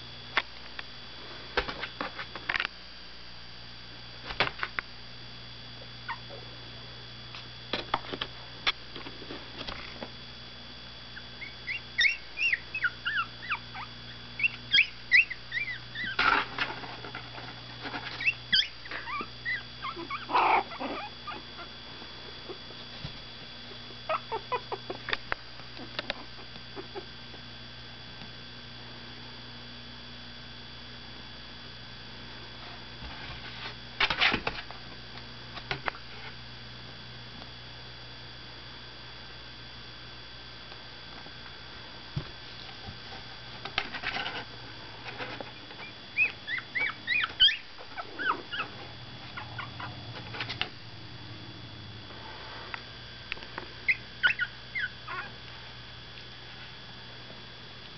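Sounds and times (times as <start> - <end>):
steady low hum: 0.0 - 57.9
puppies squeaking and whimpering: 11.4 - 16.3, 18.1 - 21.7, 24.1 - 25.0, 45.8 - 50.0, 53.9 - 55.3.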